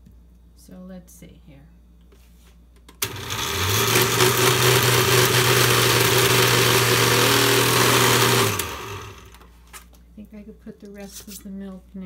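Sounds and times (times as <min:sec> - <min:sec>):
blender motor running: 0:03.0 - 0:09.5.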